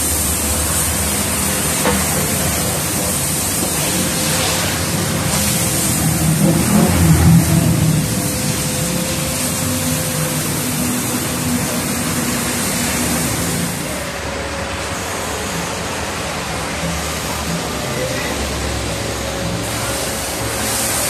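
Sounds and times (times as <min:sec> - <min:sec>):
hose spraying water: 0:00.0 - 0:21.0.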